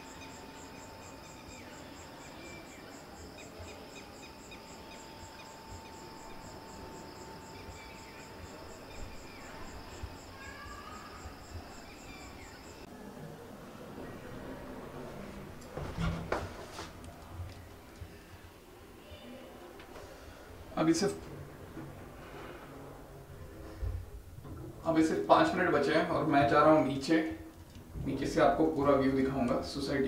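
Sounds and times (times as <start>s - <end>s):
cricket chirping: 0.0s - 12.9s
faint insect calls: 0.0s - 12.9s.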